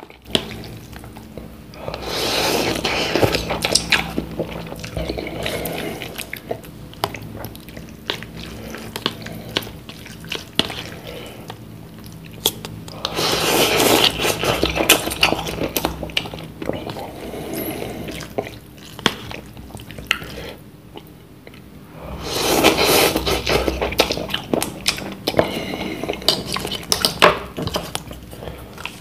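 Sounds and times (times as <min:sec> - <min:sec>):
chewing: 0:00.0 - 0:29.0
person slurping noodles: 0:01.8 - 0:06.3, 0:13.0 - 0:15.8, 0:22.0 - 0:24.5.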